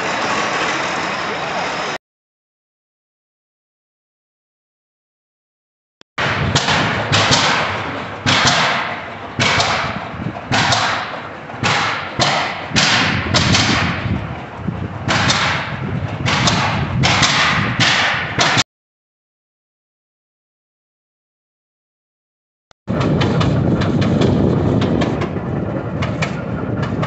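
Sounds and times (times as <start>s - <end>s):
tractor exhaust barking: 6.2s - 18.6s.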